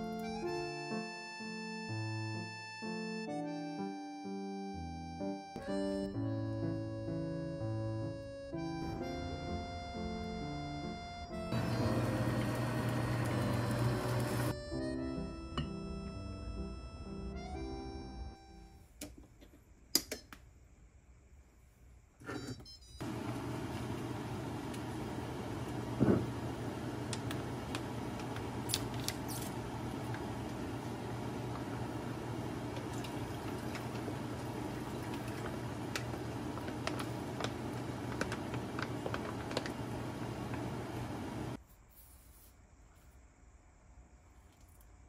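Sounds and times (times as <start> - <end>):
kitchen fan hum: 11.5 - 14.6, 23.0 - 41.6.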